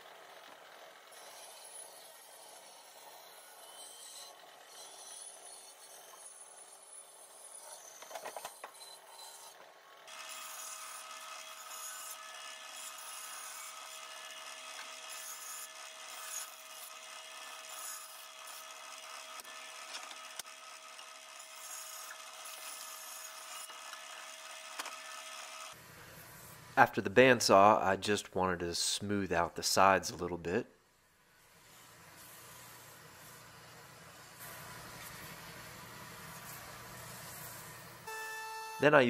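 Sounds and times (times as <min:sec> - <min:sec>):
bandsaw motor hum: 0:00.0 - 0:25.8.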